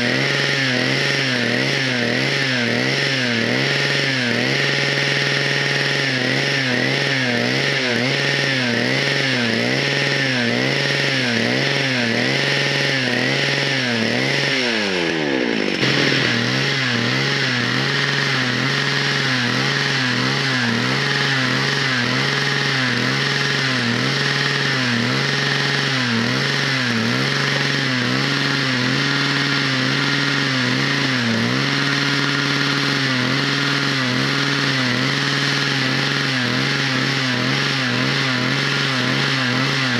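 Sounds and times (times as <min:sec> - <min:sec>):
chainsaw engine driving winch: 0:00.0 - 0:39.9.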